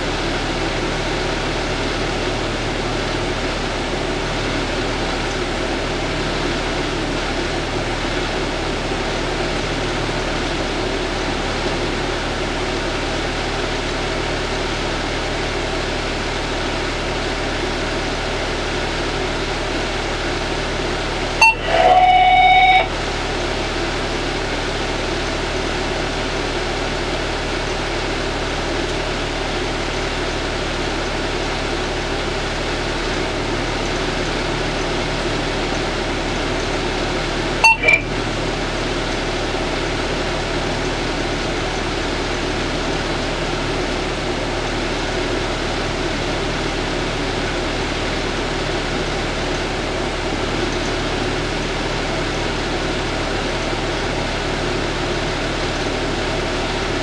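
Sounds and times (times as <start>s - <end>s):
fire engine idling: 0.0s - 57.0s
short electronic beep: 21.4s - 22.9s, 37.6s - 38.2s.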